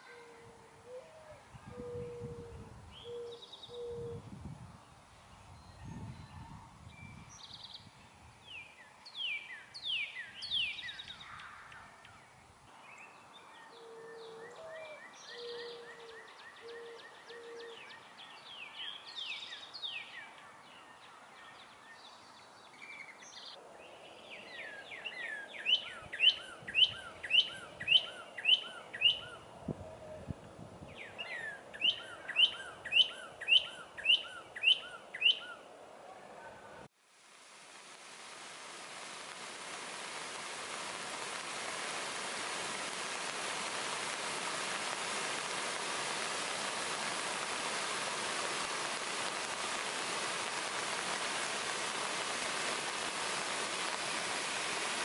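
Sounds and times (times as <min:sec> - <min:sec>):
woodland birdsong: 0:02.9 - 0:04.2, 0:05.2 - 0:30.2, 0:30.9 - 0:35.7
dove cooing: 0:16.7 - 0:17.8
songbird downslurred whistle: 0:24.6 - 0:29.4, 0:31.0 - 0:35.6.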